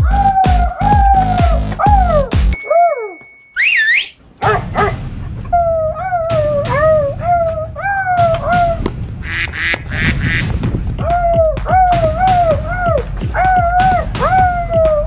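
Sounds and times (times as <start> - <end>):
harsh noisy dog calls: 4.4 - 10.4.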